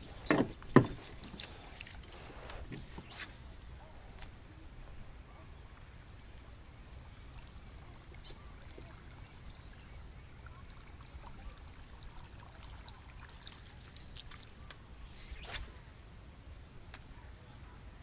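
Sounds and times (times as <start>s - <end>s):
low steady rumble: 0.0s - 18.0s
water splashing and trickling: 0.8s - 3.1s, 6.8s - 14.8s.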